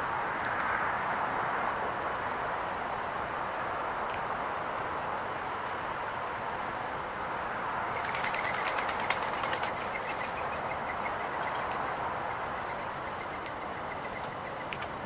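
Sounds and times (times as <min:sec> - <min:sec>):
steady background hiss: 0:00.0 - 0:15.0
birds pecking on wooden table: 0:08.0 - 0:11.9.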